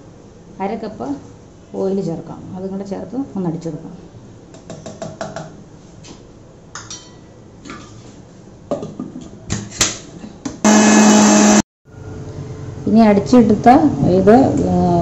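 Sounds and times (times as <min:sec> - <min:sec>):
mixer grinder motor whirring: 0:10.6 - 0:11.6.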